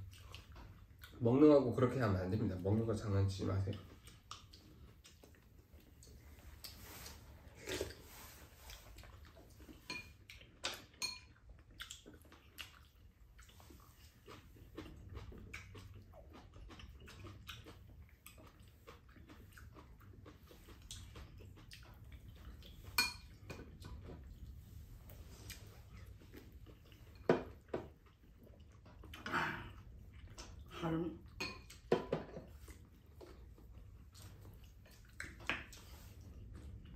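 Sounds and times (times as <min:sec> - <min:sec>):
chopsticks and spoons clicking on bowls: 0:09.6 - 0:12.0, 0:21.9 - 0:24.2, 0:31.4 - 0:32.5.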